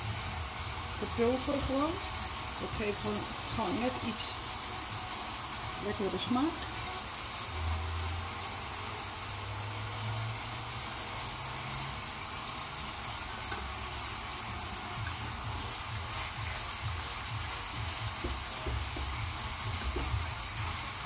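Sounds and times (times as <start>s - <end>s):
food sizzling in a frying pan: 0.0s - 21.0s
utensil knocking in a pan: 17.8s - 20.4s.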